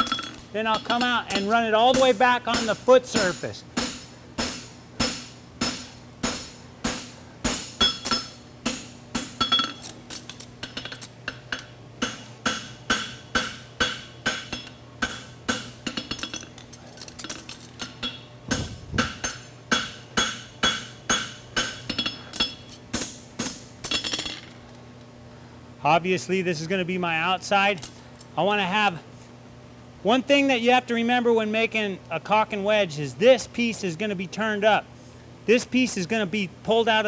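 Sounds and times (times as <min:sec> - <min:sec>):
hammer striking horseshoe on anvil: 0:00.0 - 0:16.6, 0:17.8 - 0:24.5.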